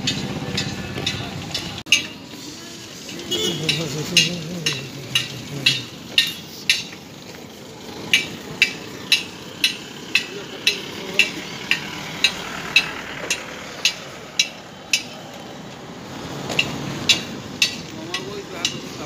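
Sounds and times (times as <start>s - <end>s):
footsteps crunching on dirt road: 0.1s - 10.0s.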